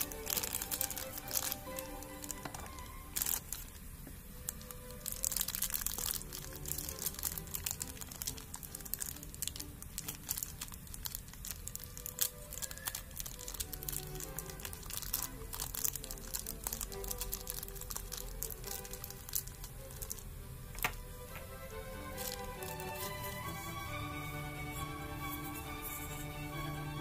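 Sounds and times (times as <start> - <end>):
plastic bags crinkling: 0.0 - 26.4
quiet background music: 0.0 - 27.0.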